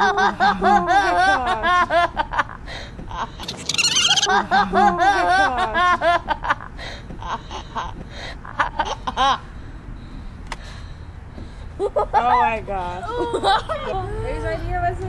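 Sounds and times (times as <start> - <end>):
children laughing: 0.0 - 9.4, 11.8 - 14.2
high-pitched squeal: 3.4 - 4.3.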